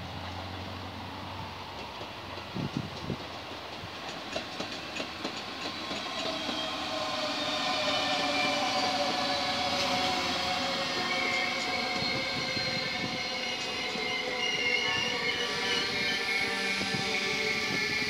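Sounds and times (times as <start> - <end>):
train running noise with whine: 0.0 - 18.0
wheels clicking over rail joints: 1.6 - 7.4.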